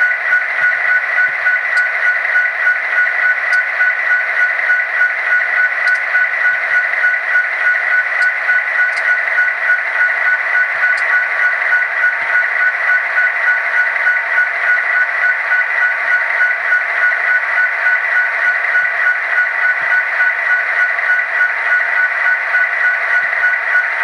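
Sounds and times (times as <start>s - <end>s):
constant high tone: 0.0s - 24.0s
diesel engine sound from small speaker: 0.0s - 24.0s.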